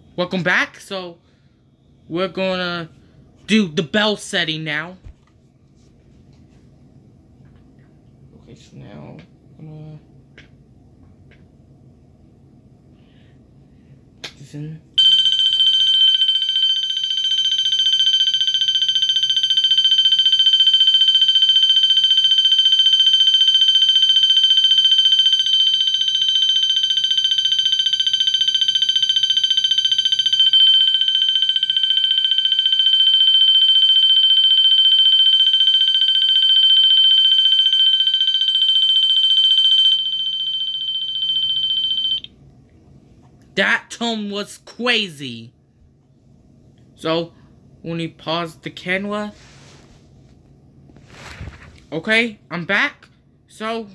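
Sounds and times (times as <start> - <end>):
fire alarm horn fluttering tone: 15.0 - 42.3.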